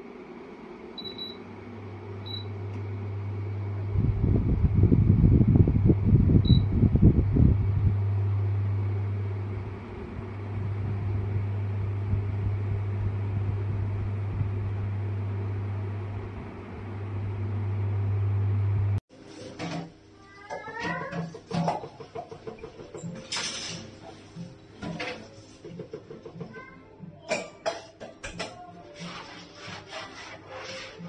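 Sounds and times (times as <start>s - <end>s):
fan air buffeting microphone: 0.0s - 19.0s
fan motor hum: 0.0s - 19.0s.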